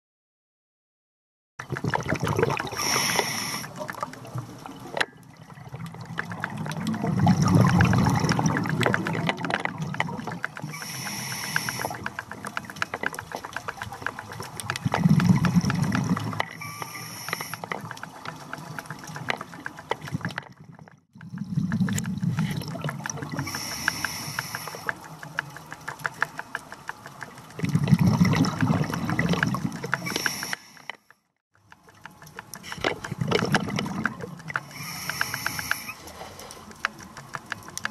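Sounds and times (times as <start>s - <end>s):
fine crackling clicks: 1.6s - 37.9s
diver breathing through regulator: 2.7s - 3.9s, 10.6s - 12.6s, 14.9s - 17.9s, 23.3s - 25.0s, 29.9s - 31.0s, 34.5s - 36.9s.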